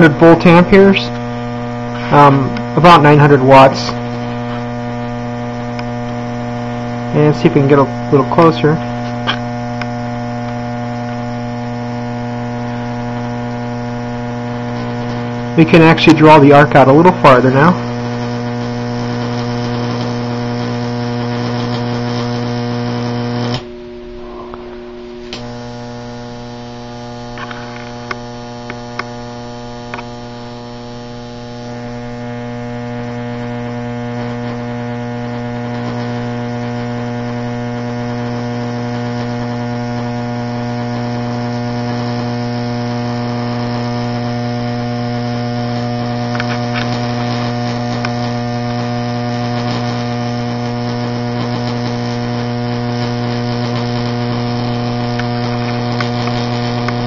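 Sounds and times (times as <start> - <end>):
electric arc buzzing: 0.0 - 57.0
sharp electric snaps: 0.0 - 57.0.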